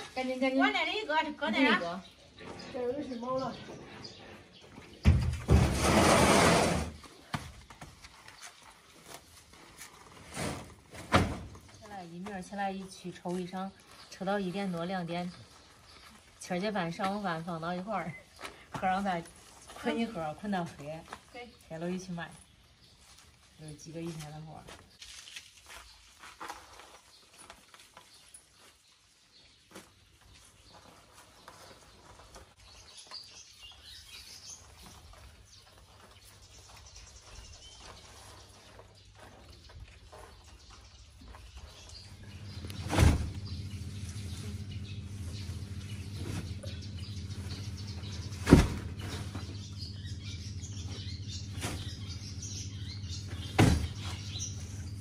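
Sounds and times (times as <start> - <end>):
plant stalks rustling and clicking: 23.0 - 29.0
steady low hum: 42.1 - 55.0
bundles thumping into plastic crate: 53.5 - 54.2.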